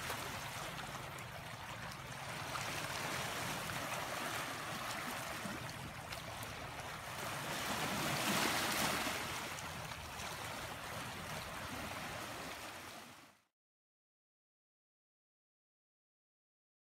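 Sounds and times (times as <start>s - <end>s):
waves washing over pebbles: 0.0s - 1.4s, 2.0s - 13.0s.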